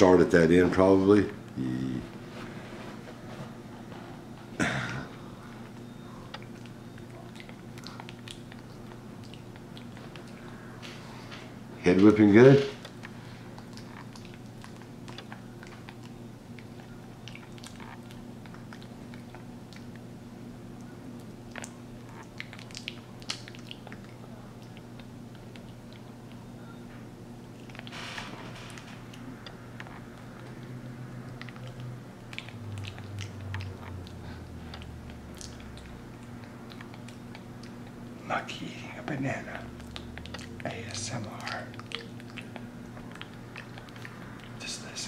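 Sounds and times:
steady low hum: 0.0 - 45.0
monkey chewing with smacking lips: 5.2 - 10.6, 12.8 - 27.9, 28.7 - 38.2, 39.1 - 44.6
monkey chewing wet smacks: 28.8 - 38.1, 39.4 - 44.6.

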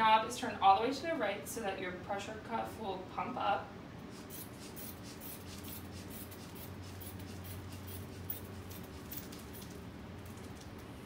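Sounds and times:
hand pump airy hisses: 4.1 - 9.3.

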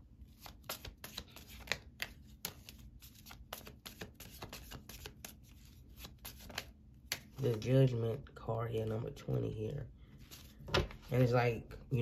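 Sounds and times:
cards shuffling and snapping: 0.3 - 7.6.

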